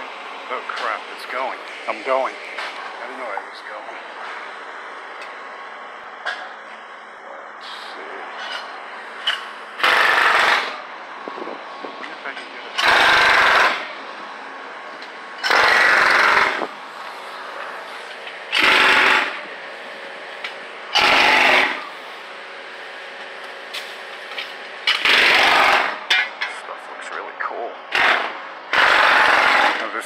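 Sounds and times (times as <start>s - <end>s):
machine hum: 0.0s - 30.0s
jackhammer hammering concrete: 9.8s - 10.8s, 12.8s - 13.9s, 15.4s - 16.7s, 18.5s - 19.4s, 20.9s - 21.9s, 24.9s - 26.2s, 27.9s - 30.0s.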